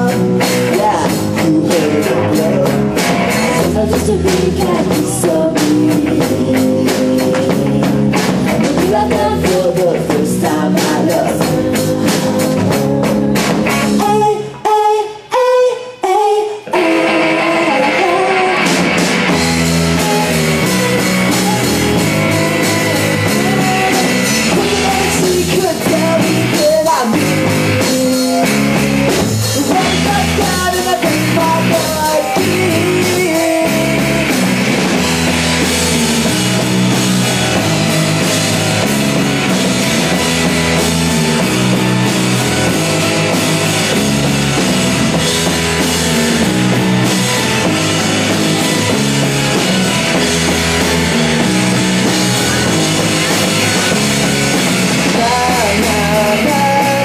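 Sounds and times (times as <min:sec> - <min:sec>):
man singing lead vocals: 0:00.0 - 0:35.6, 0:53.6 - 0:57.0
bass guitar: 0:00.0 - 0:57.0
drum kit: 0:00.0 - 0:57.0
electric guitar: 0:00.0 - 0:57.0.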